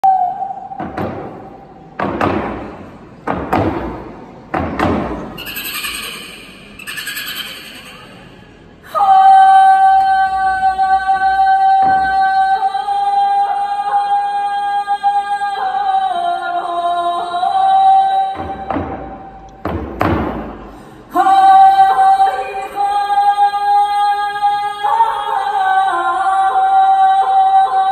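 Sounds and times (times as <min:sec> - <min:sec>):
woman singing long high note: 0:08.8 - 0:18.5.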